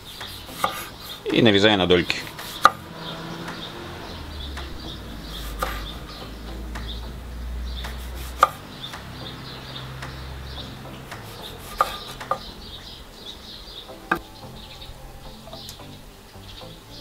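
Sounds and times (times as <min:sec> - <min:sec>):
knife slicing tomato: 0:00.1 - 0:01.3, 0:07.8 - 0:08.6, 0:11.1 - 0:12.3
blade knocking on wooden board: 0:11.1 - 0:12.5.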